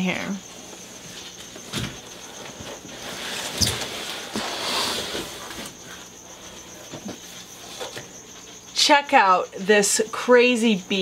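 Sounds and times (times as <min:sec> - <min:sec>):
cardboard rustling and scraping: 0:01.2 - 0:08.2.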